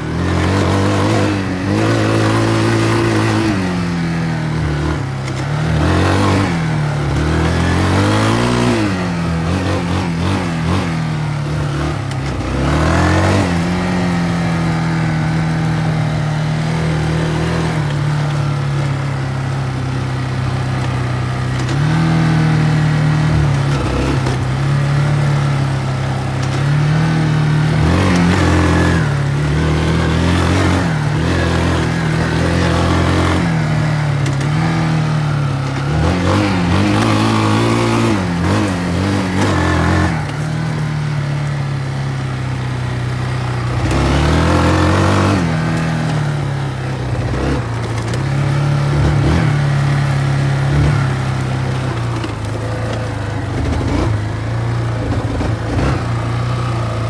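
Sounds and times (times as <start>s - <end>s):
quad bike engine revving: 0.0s - 57.0s.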